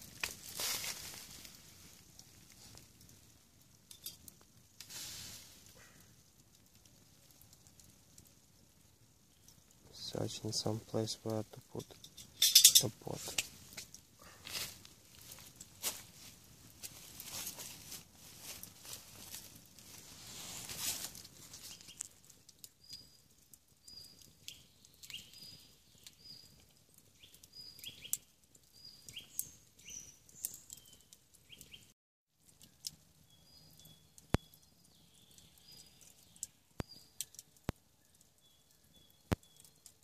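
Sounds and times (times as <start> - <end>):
campfire crackling and popping: 0.0 - 40.0
small birds chirping: 9.2 - 13.4, 21.4 - 31.9, 32.5 - 40.0.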